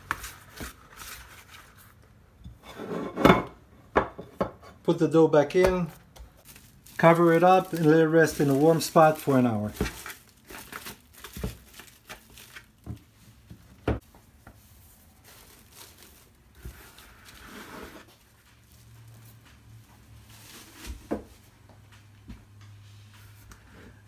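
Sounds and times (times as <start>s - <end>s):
cling film crinkling: 6.4s - 12.9s, 15.0s - 17.4s
cloth rustle: 14.3s - 21.5s.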